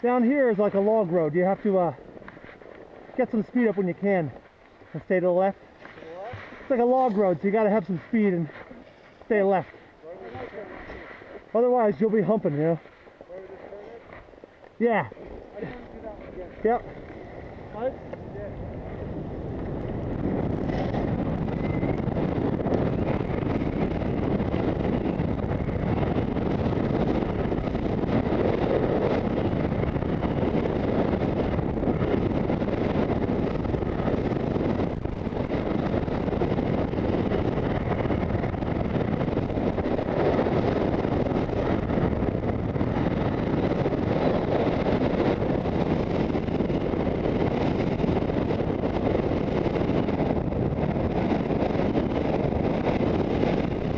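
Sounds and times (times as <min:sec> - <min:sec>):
skis sliding over packed snow: 0:00.0 - 0:19.0
wind rushing over microphone: 0:00.0 - 0:53.9.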